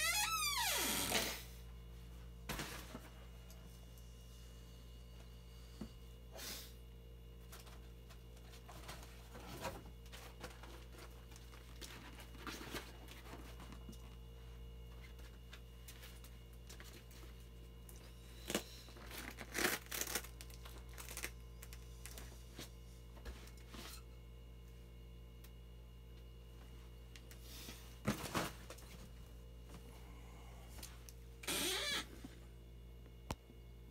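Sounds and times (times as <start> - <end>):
vinyl crinkling and rubbing: 7.5 - 24.0.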